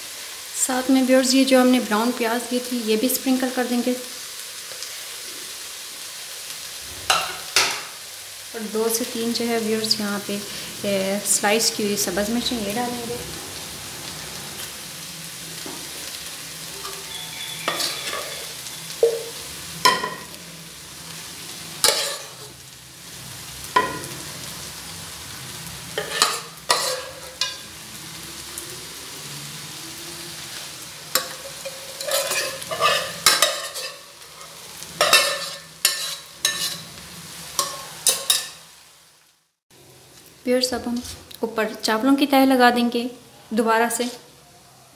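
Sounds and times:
metal spoon scraping cookware: 16.8s - 19.3s, 26.0s - 27.6s, 31.2s - 36.9s.

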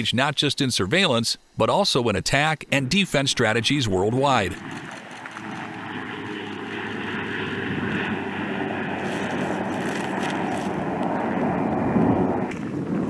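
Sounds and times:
drone propeller engine running: 2.6s - 13.0s.

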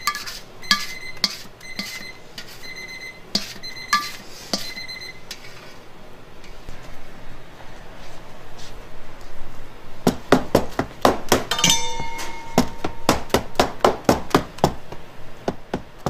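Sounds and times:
spatula knocking on steel bowl: 11.4s - 14.8s.

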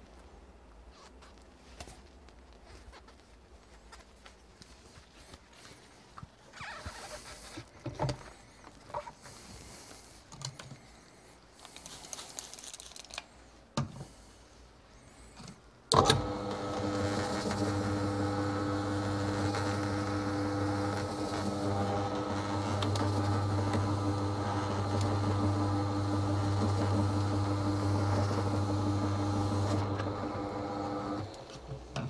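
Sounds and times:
electric motor humming: 16.0s - 31.5s.

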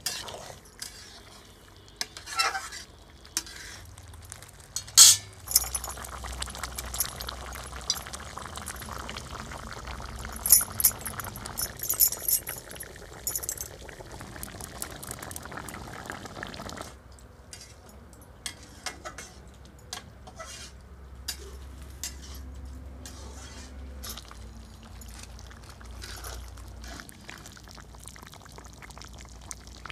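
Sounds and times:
curry bubbling in a pot: 0.0s - 5.0s, 5.7s - 11.6s, 12.6s - 17.0s, 23.0s - 29.9s
metal utensils clinking: 4.8s - 13.8s.

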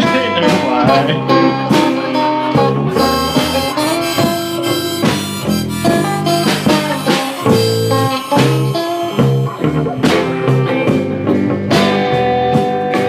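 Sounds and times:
drum kit beat: 0.0s - 13.0s
rock guitar: 0.0s - 13.0s
lead melody of held notes: 2.9s - 11.3s.

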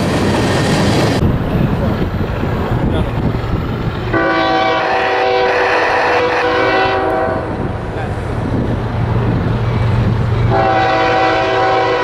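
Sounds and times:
locomotive engine low rumble: 0.0s - 5.2s, 7.1s - 11.5s
train air horn: 4.1s - 7.5s, 10.5s - 12.0s.

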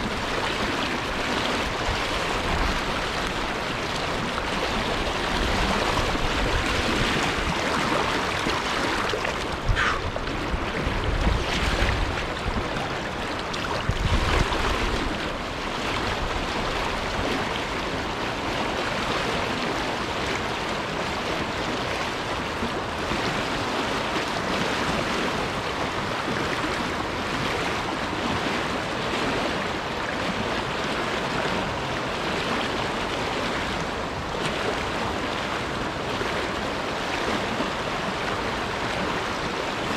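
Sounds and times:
river rushing over rocks: 0.0s - 39.9s.

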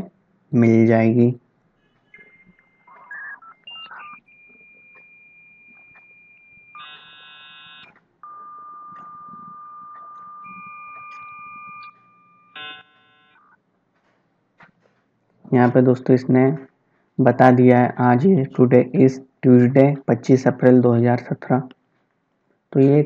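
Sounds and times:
dialing tones: 2.0s - 13.5s
modem beeping tones: 2.1s - 13.5s
modem handshake chords: 2.2s - 13.5s.

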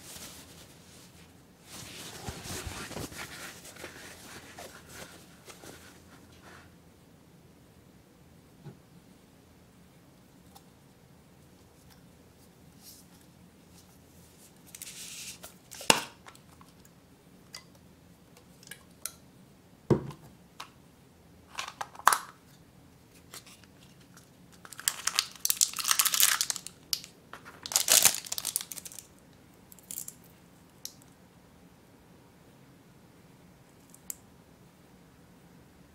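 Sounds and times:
wrapping crinkling and tearing: 24.6s - 29.1s.

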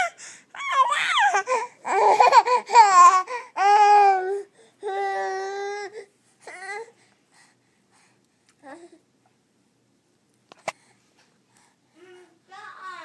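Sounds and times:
baby yelling: 0.0s - 5.8s.

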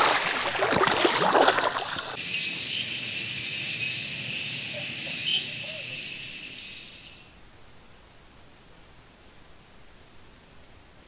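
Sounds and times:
pool water splashing: 0.0s - 2.2s
high-pitched insect chorus: 0.5s - 7.4s.

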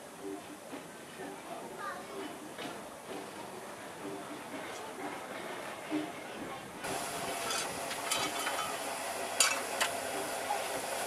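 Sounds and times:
steam hissing: 6.8s - 11.0s.

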